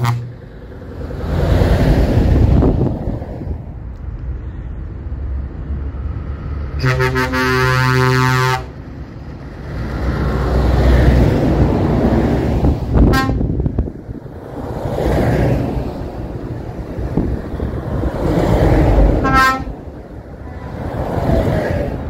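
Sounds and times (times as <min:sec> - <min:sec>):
truck air horn: 0:00.0 - 0:00.3, 0:06.8 - 0:08.8, 0:13.0 - 0:13.6, 0:19.2 - 0:19.8, 0:20.4 - 0:20.9
lorry engines rumbling: 0:00.0 - 0:22.0.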